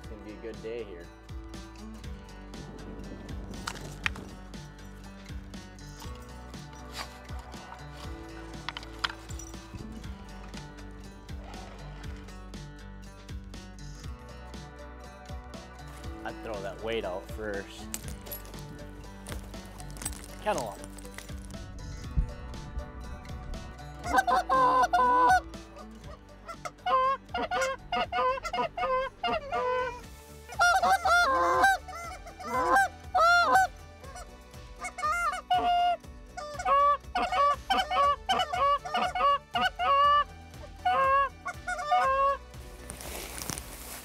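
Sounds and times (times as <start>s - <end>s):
geese honking: 24.0s - 42.4s.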